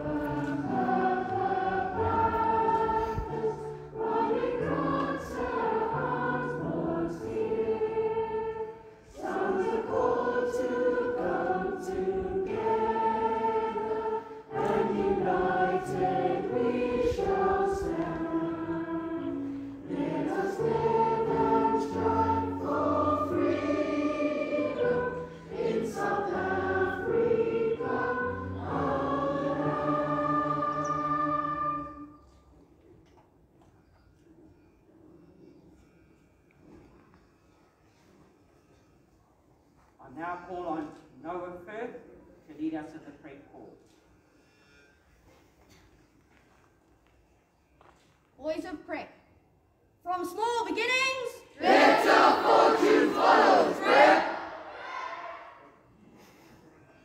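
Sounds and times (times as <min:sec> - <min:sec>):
choir singing: 0:00.0 - 0:32.6, 0:51.5 - 0:55.9.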